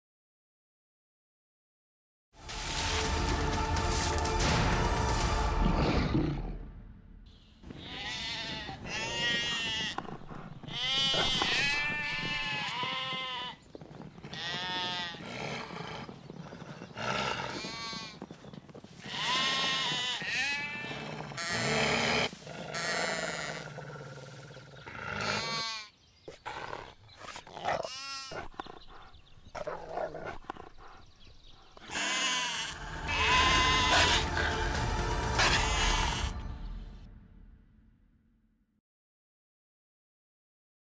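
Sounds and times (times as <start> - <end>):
lamb bleating in distress: 7.7 - 13.6, 14.3 - 15.4, 17.4 - 18.2, 19.0 - 23.7, 25.2 - 25.9, 27.6 - 28.4, 31.9 - 34.5, 35.4 - 36.4.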